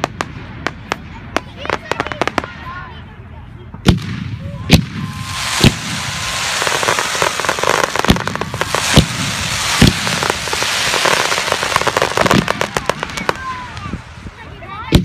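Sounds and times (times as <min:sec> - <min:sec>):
crackling hiss of fireworks: 0:00.0 - 0:15.0
firework shells bursting: 0:04.7 - 0:14.1.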